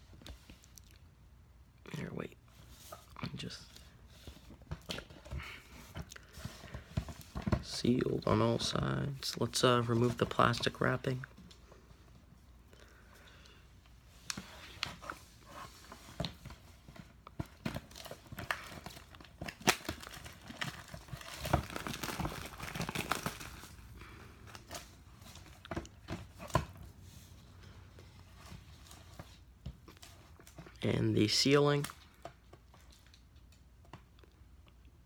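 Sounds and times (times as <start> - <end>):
shrink wrap tearing and crackling: 18.1 - 23.9.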